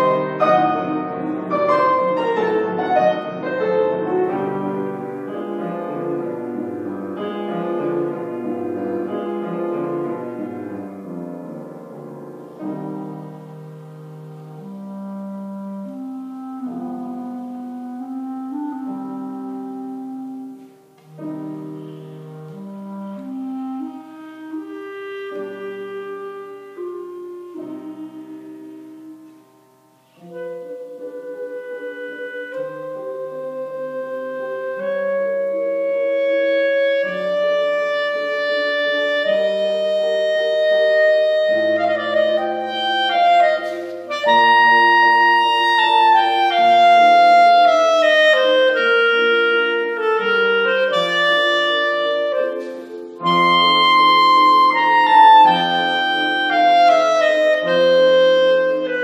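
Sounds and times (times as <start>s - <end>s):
clarinet melody: 0.0s - 59.0s.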